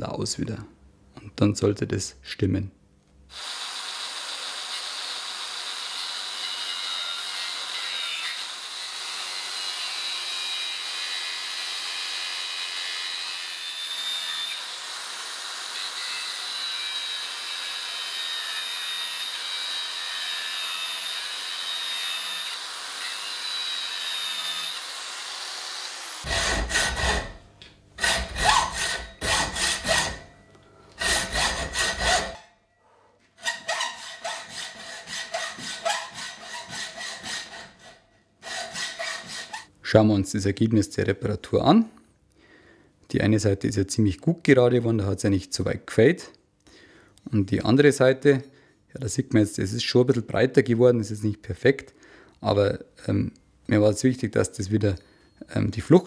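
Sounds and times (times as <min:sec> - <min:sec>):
angle grinder cutting steel: 0:03.3 - 0:27.4, 0:28.0 - 0:30.3, 0:31.0 - 0:32.5, 0:33.4 - 0:39.7.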